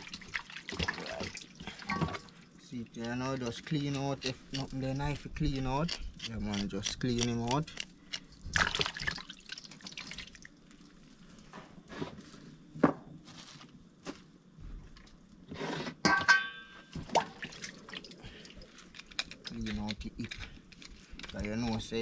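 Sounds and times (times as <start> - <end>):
water splashing in steel bowl: 0.0 - 2.3, 8.5 - 10.5.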